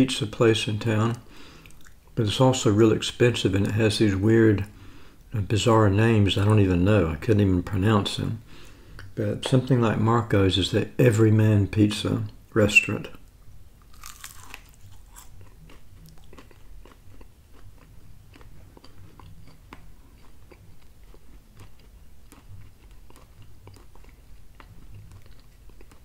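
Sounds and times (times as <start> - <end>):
chewing with mouth clicks: 1.6 - 2.0, 13.9 - 26.0
crisp pizza crunch: 13.8 - 26.0.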